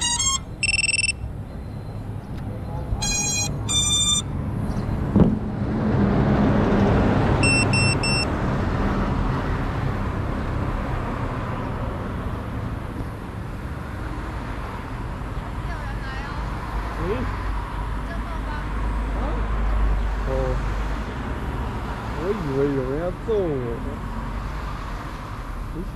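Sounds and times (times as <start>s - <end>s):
electronic beeps: 0.0s - 4.3s, 7.4s - 8.3s
road traffic noise: 0.0s - 25.9s
vehicle passing: 0.0s - 25.9s.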